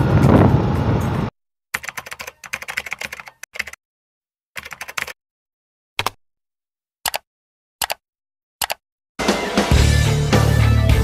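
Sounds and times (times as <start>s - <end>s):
typing on computer keyboard: 1.8s - 3.8s, 4.6s - 5.2s, 8.6s - 8.8s.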